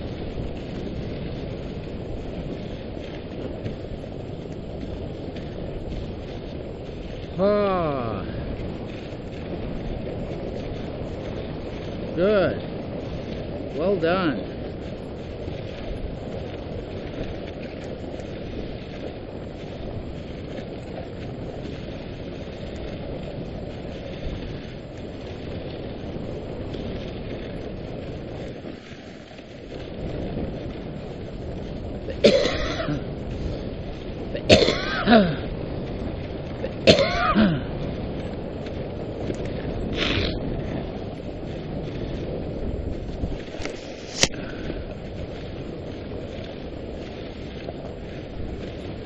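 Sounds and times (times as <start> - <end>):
sled runners rushing on snow: 0.0 - 49.0
wind on microphone: 0.0 - 49.0
harsh throat-clearing: 34.4 - 35.4.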